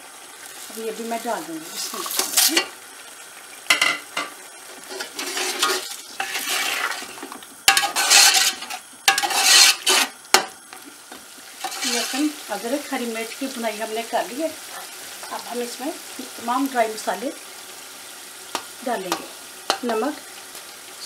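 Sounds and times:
spices sizzling in oil: 0.0 - 21.0
metal spoon scraping pot: 4.9 - 7.1, 7.7 - 10.1, 11.6 - 12.3.

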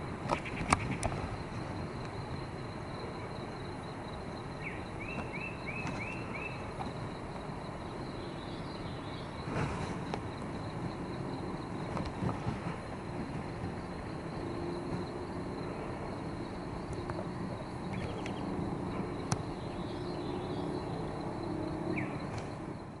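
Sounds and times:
high insect drone: 0.0 - 23.0
low background hiss: 0.0 - 23.0
bird chirps: 4.5 - 6.8, 7.8 - 9.6, 17.9 - 21.2, 21.8 - 22.3.

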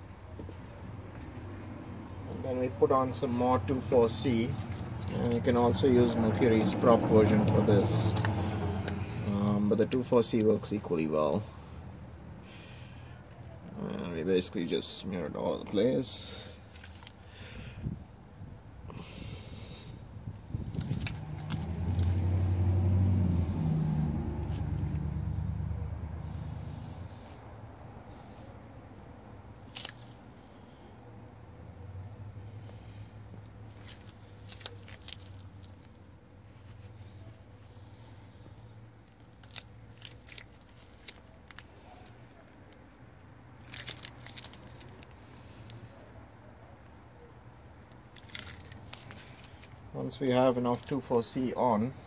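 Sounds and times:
motor vehicle engine humming: 0.0 - 14.0, 16.3 - 52.0
grease tube clicks and crackles: 4.5 - 10.8, 20.6 - 22.2, 29.6 - 30.2, 33.4 - 36.0, 39.0 - 42.9, 43.6 - 45.8, 47.9 - 49.9.

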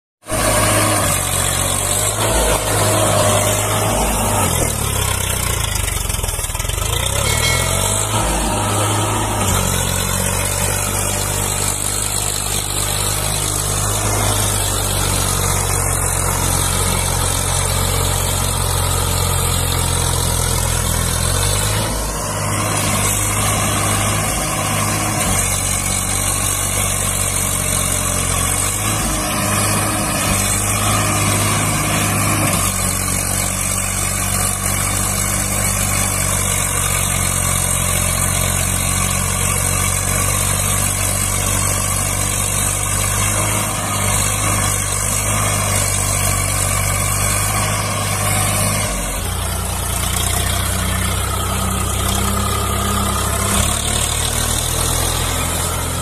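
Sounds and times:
tractor diesel engine under load: 0.2 - 56.0.

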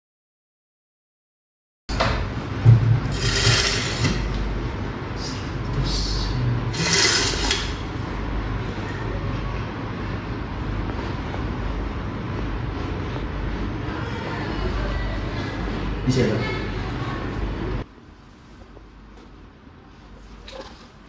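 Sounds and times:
steady low hum: 1.9 - 21.0
machine sliding and rumbling: 2.2 - 5.3, 6.6 - 8.7.

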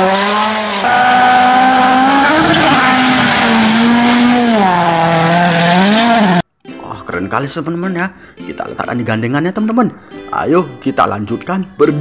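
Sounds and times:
rally car engine revving: 0.0 - 6.4.

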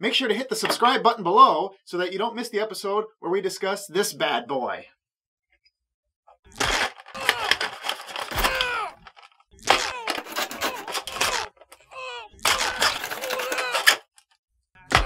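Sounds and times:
knife crunching plastic packaging: 6.6 - 14.2.

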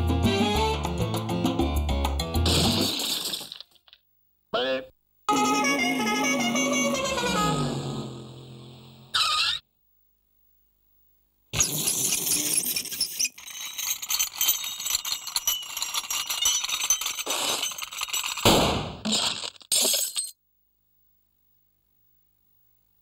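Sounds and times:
glass shattering: 2.5 - 4.0, 11.6 - 20.4.

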